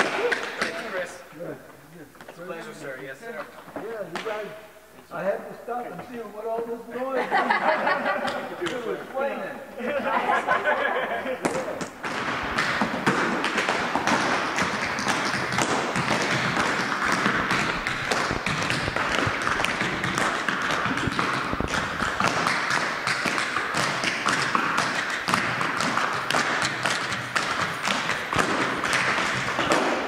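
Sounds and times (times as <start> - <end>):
feet tapping on wooden floor: 11.4 - 30.0.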